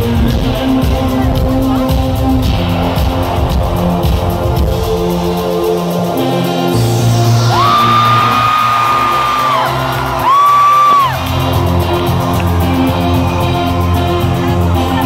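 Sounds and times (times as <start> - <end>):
live synth-pop band: 0.0 - 15.0
person whooping: 7.5 - 11.2.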